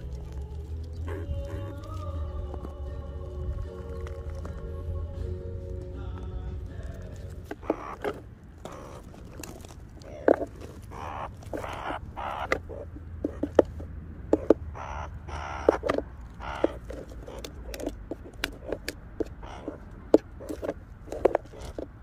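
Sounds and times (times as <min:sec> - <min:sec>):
meerkat raspy calls: 0:00.0 - 0:22.0
clicks and taps on plastic: 0:12.4 - 0:14.7, 0:15.5 - 0:22.0.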